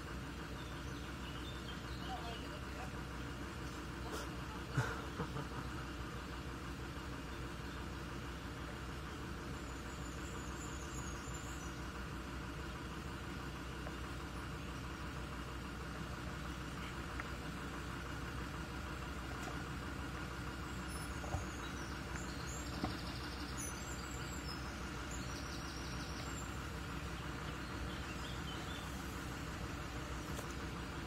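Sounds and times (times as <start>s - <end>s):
car engine idling: 0.0s - 31.0s
faint bird chirps: 7.3s - 12.0s, 20.6s - 29.3s.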